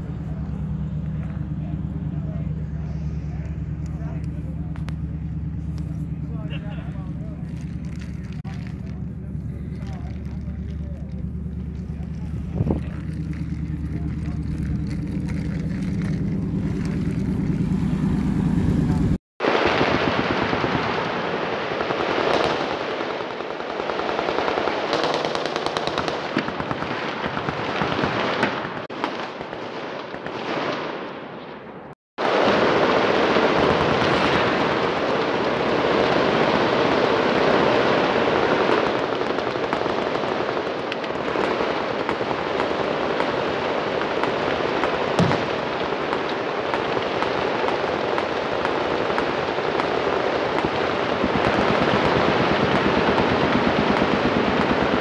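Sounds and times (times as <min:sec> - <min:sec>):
machine guns firing: 0:18.8 - 0:31.2, 0:32.2 - 0:55.0
loud sharp bang: 0:45.2 - 0:45.8.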